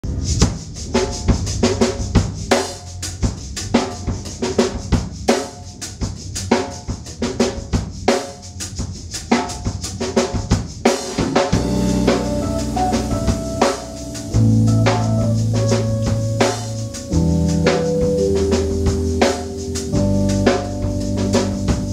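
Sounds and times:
drum kit playing a groove: 0.0 - 21.9
keyboard chords: 11.6 - 21.9
low bass line: 11.6 - 21.9.

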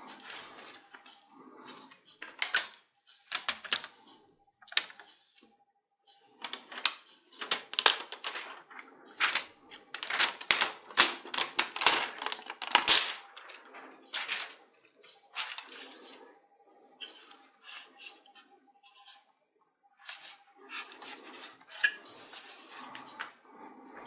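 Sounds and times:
plastic film being peeled off: 6.6 - 8.6, 9.2 - 13.5, 14.2 - 14.5.

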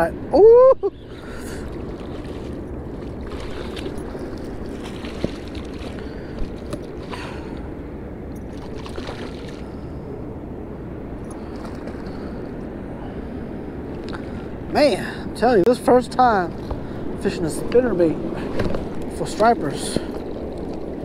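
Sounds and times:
water noise: 0.0 - 21.0
wind: 0.0 - 21.0
fish thrashing and splashing: 1.2 - 7.6, 8.5 - 9.9.

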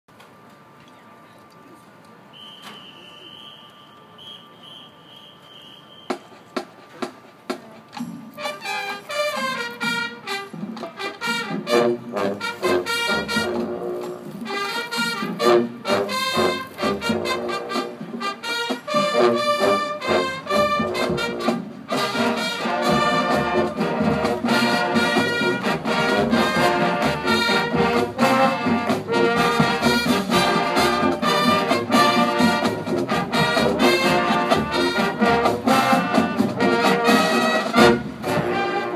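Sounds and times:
marching band brass and drums: 2.3 - 38.9
sharp percussion hits: 5.4 - 11.0.

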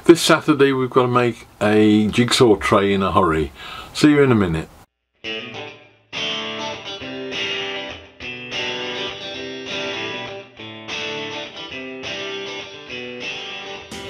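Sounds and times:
guitar background music: 5.2 - 14.0.

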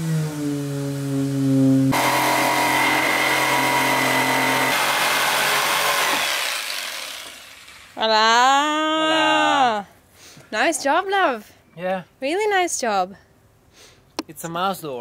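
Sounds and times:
jigsaw cutting wood: 1.9 - 8.0.

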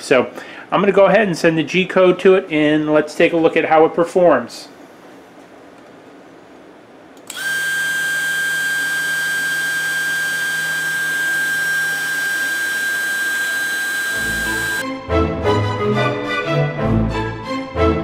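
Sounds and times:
spindle motor high-pitched whine: 7.3 - 14.8.

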